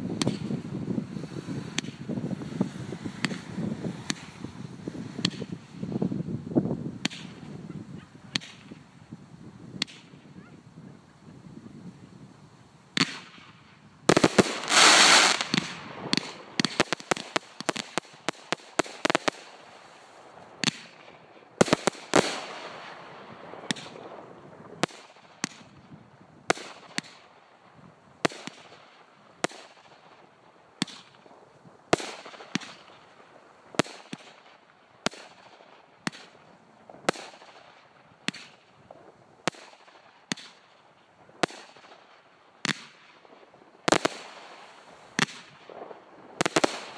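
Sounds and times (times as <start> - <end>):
firework shots popping: 0.0 - 5.8, 7.0 - 8.8, 9.7 - 10.2, 13.0 - 19.8, 20.6 - 23.0, 23.6 - 24.2, 24.8 - 25.8, 28.2 - 30.2, 30.8 - 31.3, 31.9 - 33.0, 33.8 - 40.8, 41.4 - 46.9
firework bangs: 0.0 - 6.1, 13.0 - 25.8, 32.0 - 33.0, 41.4 - 46.9
firework hissing burst: 14.1 - 20.9.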